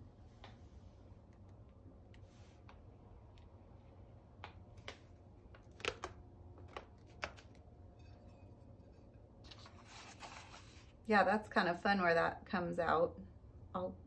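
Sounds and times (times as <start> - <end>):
paper rustling: 9.4 - 10.9.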